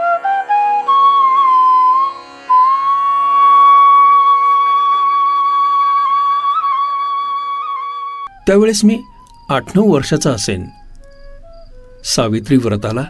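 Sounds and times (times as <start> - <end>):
steady drone: 0.0 - 6.2
flute melody: 0.0 - 13.0.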